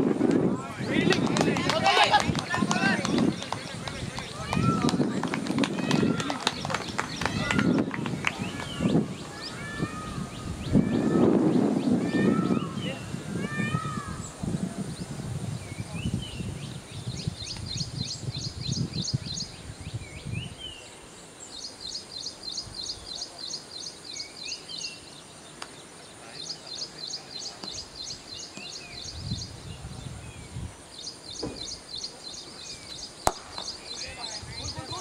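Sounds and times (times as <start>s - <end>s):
bird chirping: 14.1s - 35.0s
cricket bat hitting ball: 33.3s - 33.8s.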